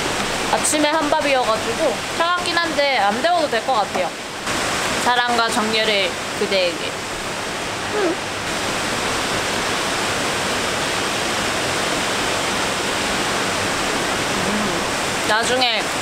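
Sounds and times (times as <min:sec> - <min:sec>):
stream water rushing: 0:00.0 - 0:16.0
short voice sound: 0:14.4 - 0:15.0.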